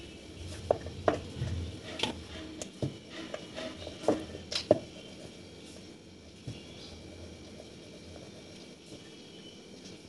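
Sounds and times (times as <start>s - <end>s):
rolling pin rolling dough: 0.4s - 7.0s.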